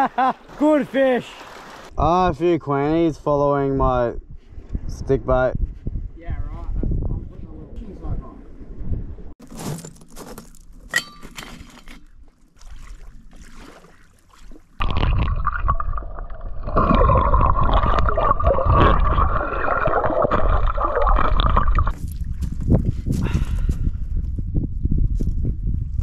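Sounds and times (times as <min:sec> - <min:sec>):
bare feet crunching on rubble: 0:09.4 - 0:12.4
muffled underwater rushing: 0:14.8 - 0:21.9.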